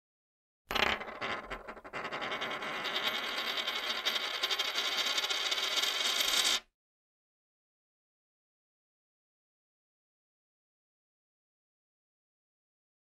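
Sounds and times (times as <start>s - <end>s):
coin spinning on hard surface: 0.7s - 6.7s.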